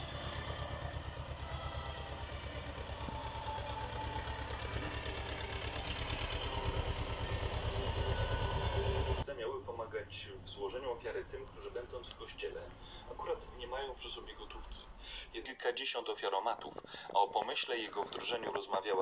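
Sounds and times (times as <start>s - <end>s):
motor running with rapid throb: 0.0s - 9.2s.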